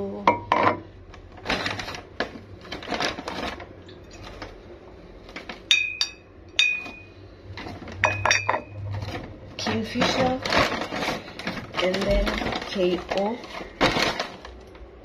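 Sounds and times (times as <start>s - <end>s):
paper bag rustling: 1.4s - 5.7s, 7.2s - 8.1s, 8.8s - 15.0s
glass bottles clinking: 5.7s - 7.1s, 8.0s - 8.8s.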